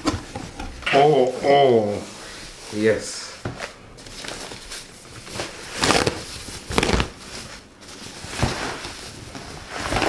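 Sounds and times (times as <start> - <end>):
plastic sheet crinkling: 3.6 - 10.0.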